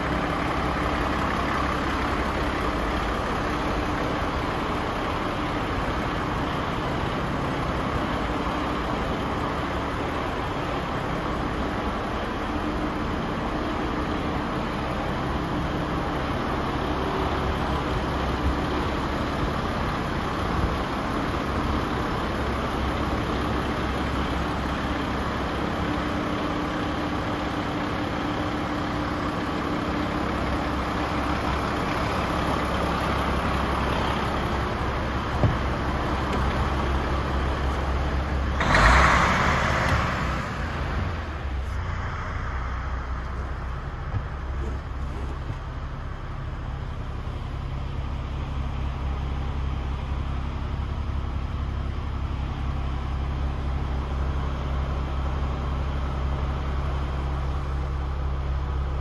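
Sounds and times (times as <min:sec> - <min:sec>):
truck diesel engine idling: 0:00.0 - 0:59.0
rushing burst: 0:38.6 - 0:42.9.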